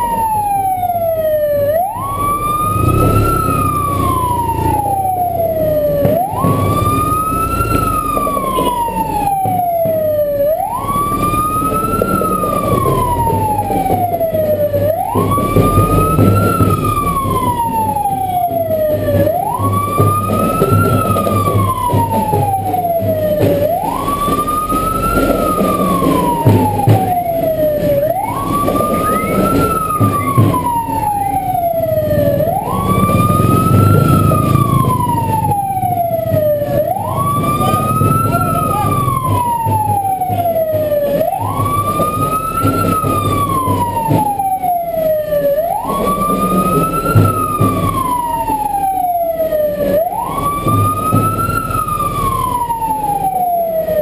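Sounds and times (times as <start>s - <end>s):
electronic siren wailing: 0.0s - 54.0s
vehicle engine rumbling: 0.0s - 54.0s.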